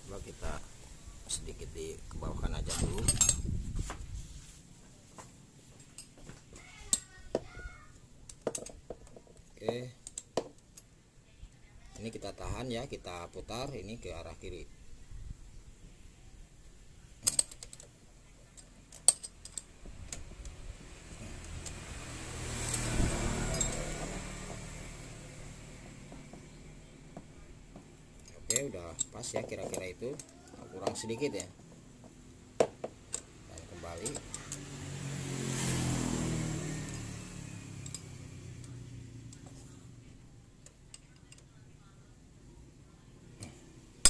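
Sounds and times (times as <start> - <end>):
passing vehicle engine: 20.3 - 28.2, 31.6 - 40.3.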